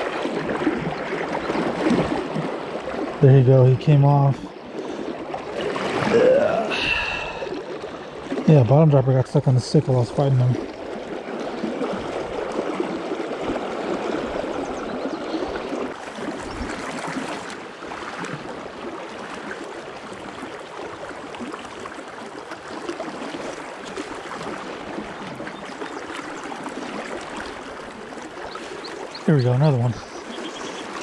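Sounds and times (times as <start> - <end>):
river current rushing: 4.5 - 8.9.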